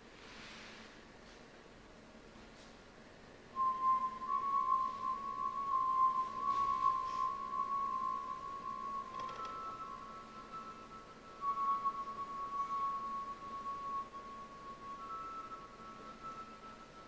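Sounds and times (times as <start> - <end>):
high whistle-like tone: 3.6 - 17.0.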